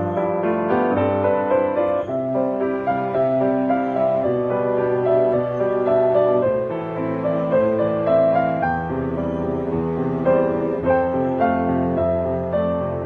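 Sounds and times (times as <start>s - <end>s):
piano music: 0.0s - 13.0s.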